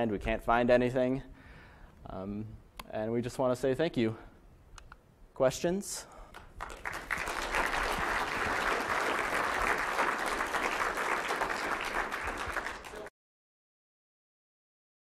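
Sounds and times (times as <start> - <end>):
audience applauding: 6.4 - 13.1.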